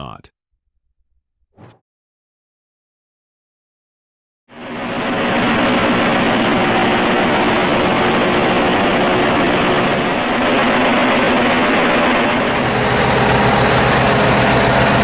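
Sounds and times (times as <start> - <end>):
marine diesel engine droning: 12.2 - 15.0.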